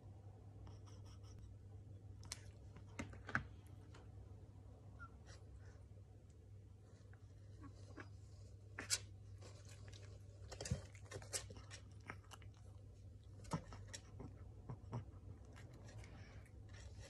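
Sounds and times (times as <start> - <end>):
puppy chewing food: 9.5 - 17.0.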